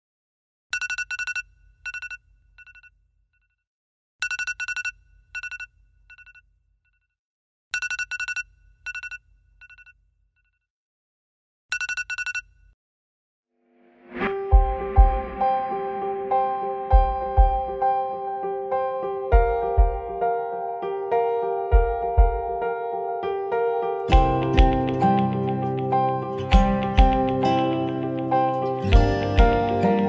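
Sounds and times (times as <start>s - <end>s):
electronic ringtone beeps: 0.8s - 2.9s, 4.2s - 6.4s, 7.8s - 9.9s, 11.7s - 12.5s.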